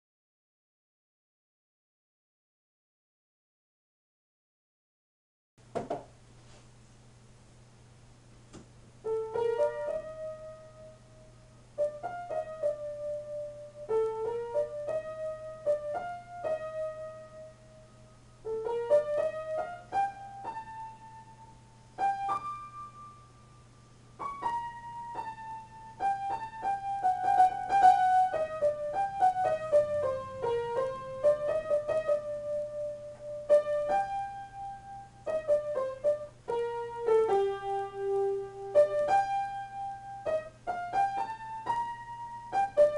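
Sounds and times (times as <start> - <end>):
solo piano: 9.0 - 42.9.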